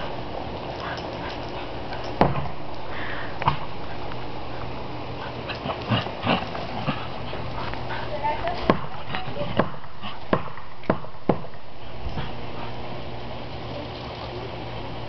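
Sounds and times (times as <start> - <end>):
dogs scuffling: 0.0 - 10.4
background hiss: 0.0 - 15.0.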